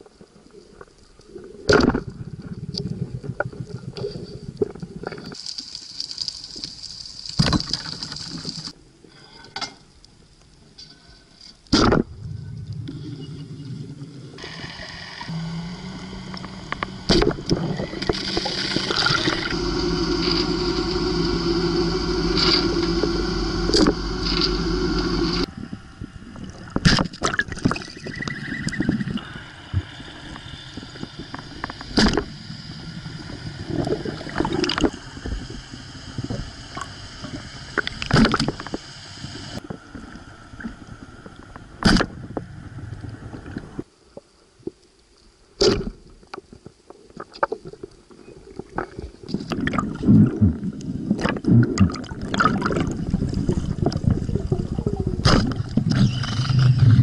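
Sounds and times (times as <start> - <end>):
underwater boat engine drone: 12.1 - 26.9, 28.0 - 41.7.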